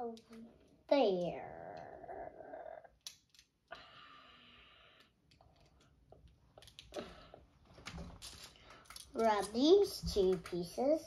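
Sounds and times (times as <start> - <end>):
plastic bricks clicking together: 3.0 - 3.6, 5.3 - 7.0, 8.2 - 9.6.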